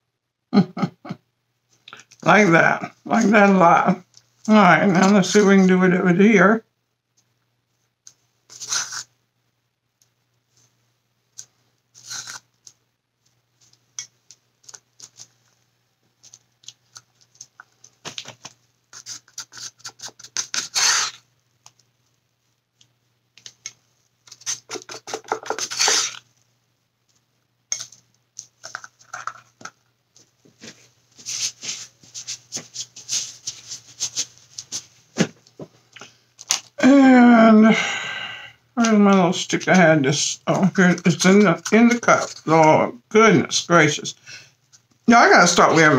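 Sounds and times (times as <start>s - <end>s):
stick scraping paint: 8.5s - 9.1s, 12.0s - 12.4s, 18.9s - 21.2s, 24.3s - 26.2s
stick tapping and clicking: 24.4s - 26.1s.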